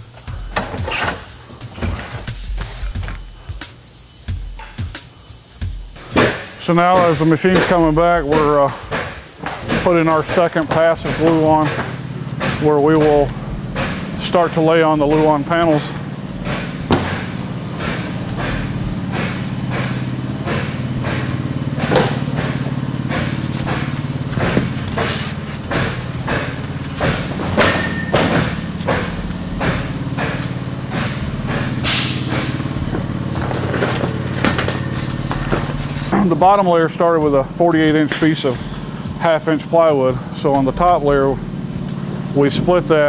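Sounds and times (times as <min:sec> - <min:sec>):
machine motor hum: 0:06.0 - 0:43.0
sharp clacks and knocks: 0:06.2 - 0:36.4.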